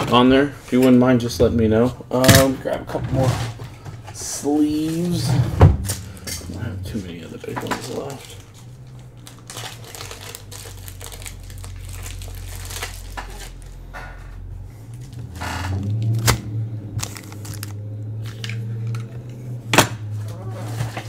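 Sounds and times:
steady low hum: 0.0s - 21.0s
plastic and cardboard rustling: 2.4s - 16.3s, 20.0s - 21.0s.

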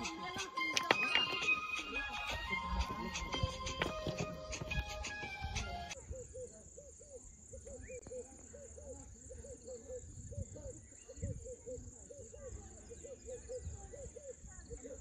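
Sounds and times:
background music: 0.0s - 6.0s.

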